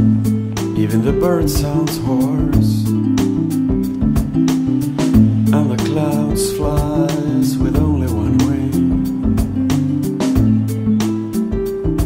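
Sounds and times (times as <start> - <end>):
song with drums and bass: 0.0 - 12.0
person singing: 0.6 - 3.3, 4.9 - 10.3.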